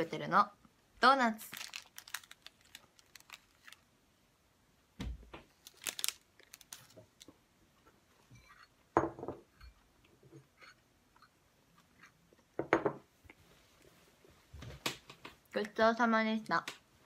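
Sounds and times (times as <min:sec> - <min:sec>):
doughnut eating and handling sounds: 0:01.3 - 0:04.0, 0:05.5 - 0:08.9.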